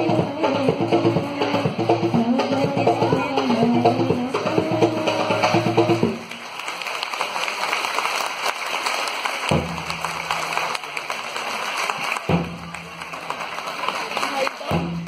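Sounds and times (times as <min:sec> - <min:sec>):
drum-backed music: 0:00.0 - 0:06.3, 0:09.5 - 0:10.6, 0:12.2 - 0:13.4, 0:14.5 - 0:15.0
audience applause: 0:05.7 - 0:15.0.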